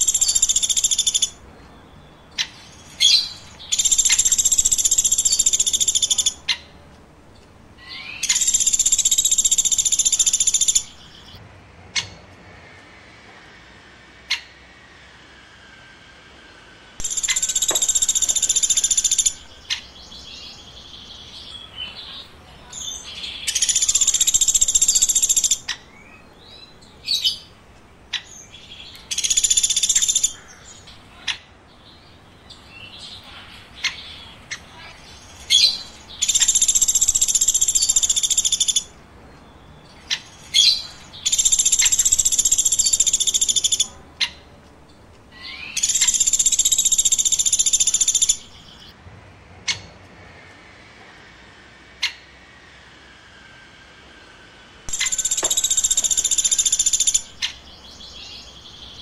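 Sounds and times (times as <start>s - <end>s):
woodpecker calling: 0.0s - 11.4s, 17.0s - 49.0s, 54.9s - 59.0s
sharp bird chips: 17.0s - 27.5s, 31.9s - 39.0s, 54.9s - 59.0s.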